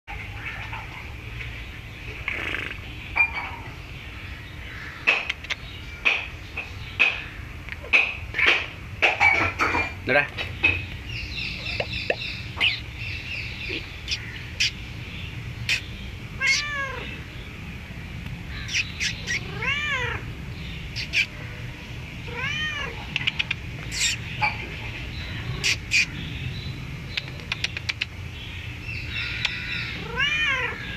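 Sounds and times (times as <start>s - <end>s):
cat meowing: 16.4s - 17.2s, 18.7s - 20.2s, 22.3s - 23.0s, 30.0s - 30.9s.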